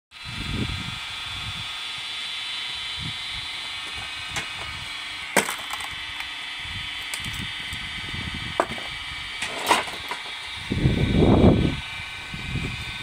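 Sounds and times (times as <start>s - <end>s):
electric motor humming: 0.1s - 13.0s
wood splintering: 1.0s - 7.9s, 8.5s - 10.6s.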